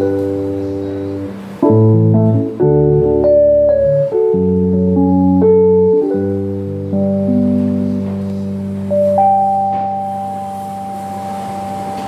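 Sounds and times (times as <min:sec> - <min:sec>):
keyboard playing held chords: 0:00.0 - 0:12.0.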